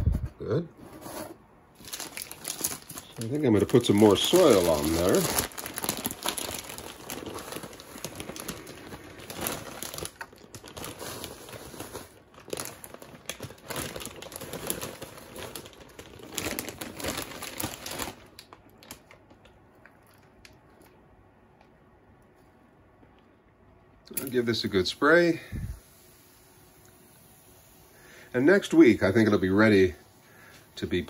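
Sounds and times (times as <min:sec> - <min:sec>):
plastic bag crinkling: 0:01.7 - 0:21.0.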